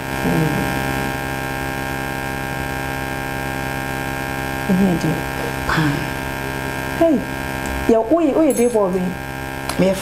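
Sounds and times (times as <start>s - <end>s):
electrical mains hum: 0.0s - 10.0s
woman's voice: 4.7s - 6.3s, 7.0s - 10.0s.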